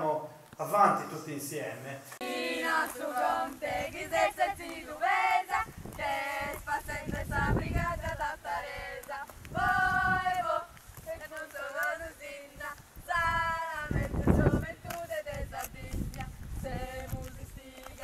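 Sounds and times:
choir singing: 2.2 - 15.8.

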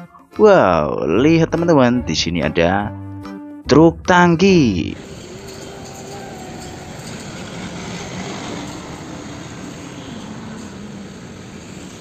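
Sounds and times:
vehicle engine rumble: 5.0 - 12.0.

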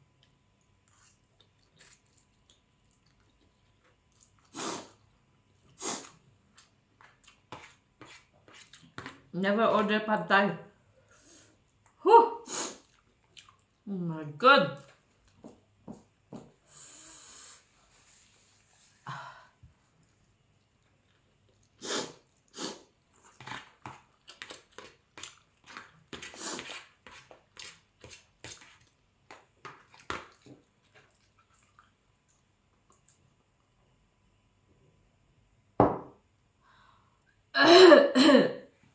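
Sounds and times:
person breathing sharply and sniffing: 16.6 - 17.8.

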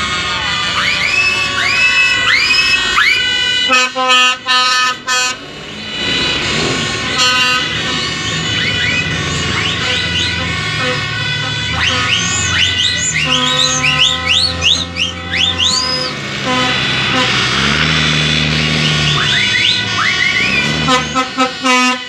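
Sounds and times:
bus air horn blasts: 0.0 - 22.0
bus engine rumbling: 0.0 - 22.0
short rising whistles: 12.2 - 16.1.

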